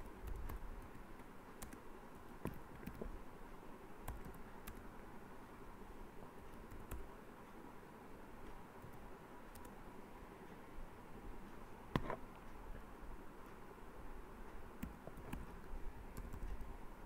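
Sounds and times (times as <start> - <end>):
faint room hiss: 0.0 - 17.0
keyboard key presses: 2.4 - 3.1, 4.0 - 4.8, 14.8 - 15.6, 16.2 - 16.7.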